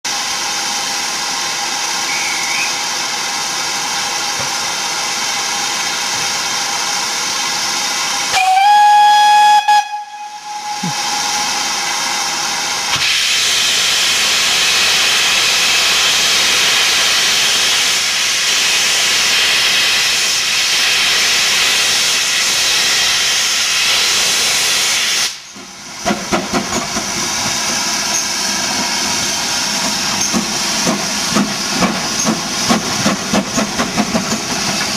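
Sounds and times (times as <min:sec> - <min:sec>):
steam hissing: 0:00.1 - 0:34.9
steam locomotive exhaust chuffs: 0:00.1 - 0:34.9
steam whistle blast: 0:08.3 - 0:11.7.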